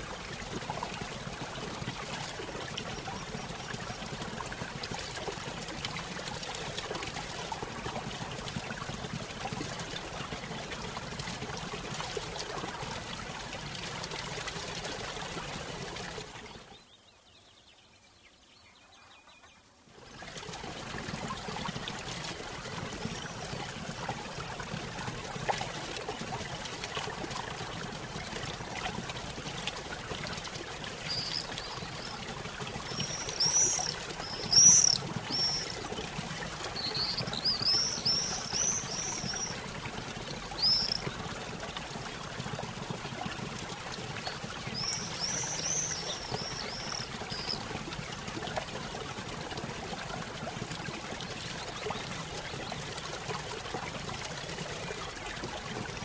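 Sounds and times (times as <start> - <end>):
small bird chirping: 32.9 - 35.7, 36.8 - 39.5, 40.6 - 41.1.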